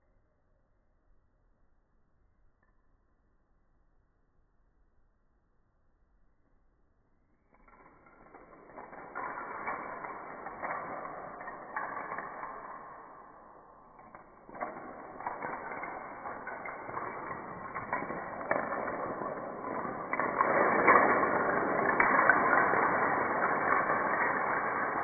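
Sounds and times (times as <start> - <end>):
dominoes toppling: 7.5 - 25.0.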